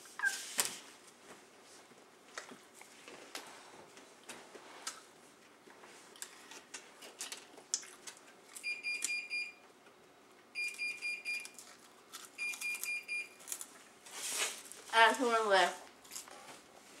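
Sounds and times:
crackers being chewed: 0:02.3 - 0:14.9, 0:15.9 - 0:16.7
timer alarm beeping: 0:08.6 - 0:09.6, 0:10.6 - 0:11.4, 0:12.4 - 0:13.4.

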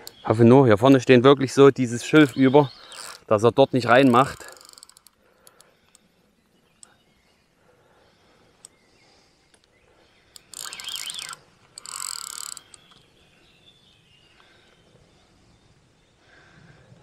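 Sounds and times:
fishing reel drag buzzing: 0:02.1 - 0:06.0, 0:10.3 - 0:13.0.

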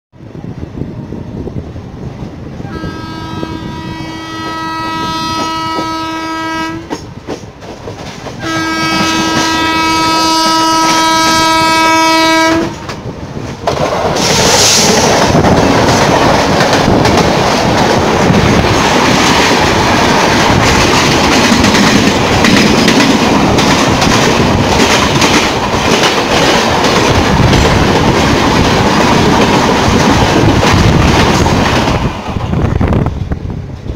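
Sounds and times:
train rushing past: 0:00.2 - 0:33.9
locomotive horn blasts: 0:02.6 - 0:07.0, 0:08.4 - 0:12.8.

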